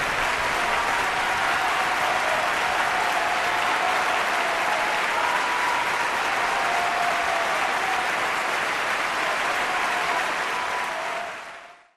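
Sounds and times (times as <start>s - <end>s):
audience applause: 0.0s - 11.9s.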